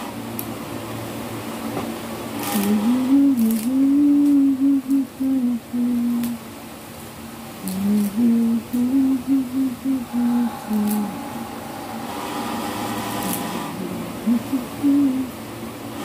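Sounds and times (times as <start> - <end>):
woman humming: 2.4 - 6.4, 7.6 - 15.6.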